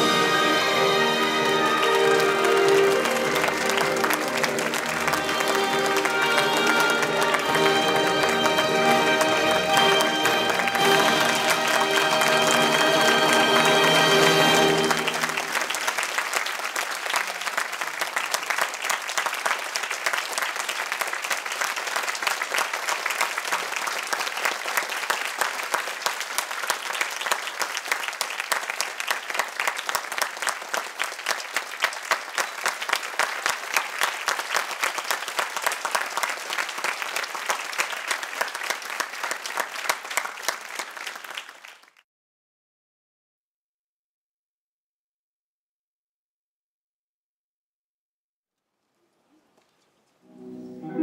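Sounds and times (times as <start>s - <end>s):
audience applauding: 0.0s - 42.0s.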